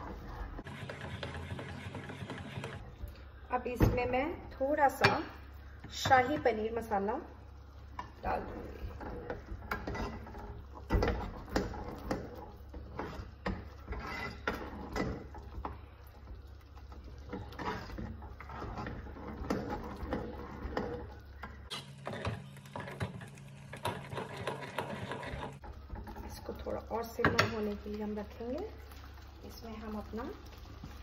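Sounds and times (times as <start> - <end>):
metal spoon scraping a pot: 0.6 - 2.8, 8.3 - 15.8, 16.9 - 26.3.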